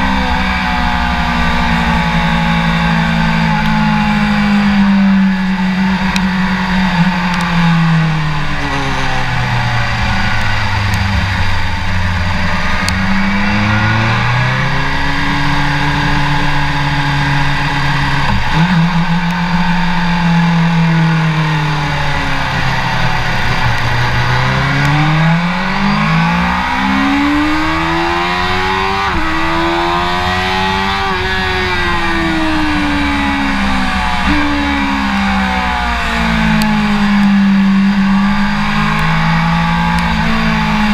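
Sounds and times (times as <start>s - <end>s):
gear changes: 0.0s - 40.9s
motorcycle engine revving: 0.0s - 40.9s.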